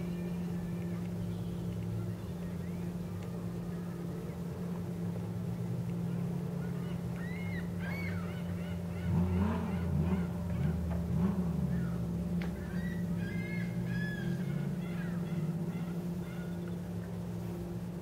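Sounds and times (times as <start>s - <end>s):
low engine hum: 0.0s - 18.0s
birds calling: 6.5s - 17.6s.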